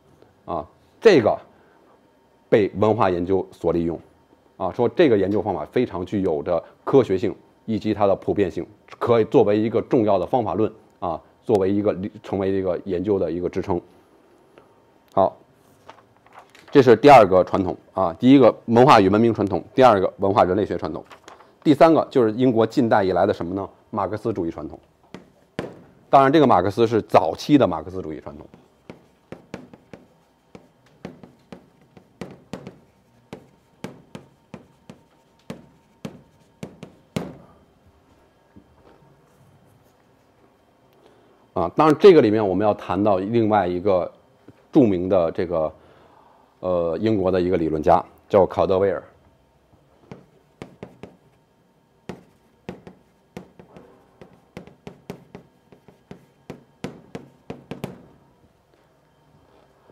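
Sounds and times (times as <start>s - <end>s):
chalk tapping on blackboard: 25.1s - 25.8s, 28.4s - 37.4s, 50.0s - 51.4s, 52.0s - 58.1s.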